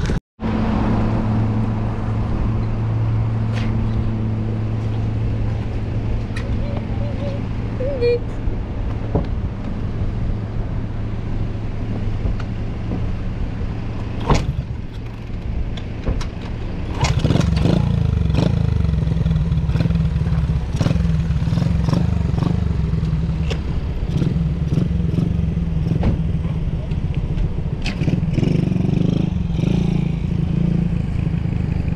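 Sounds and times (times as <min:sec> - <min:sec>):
sharp clicks and knocks: 0:14.1 - 0:17.8
minibike engine accelerating: 0:16.8 - 0:31.9.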